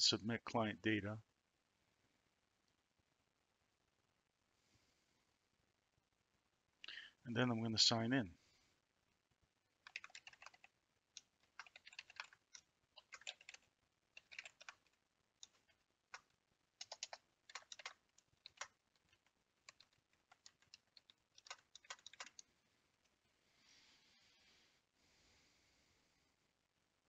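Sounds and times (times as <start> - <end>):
keyboard typing: 9.8 - 22.4.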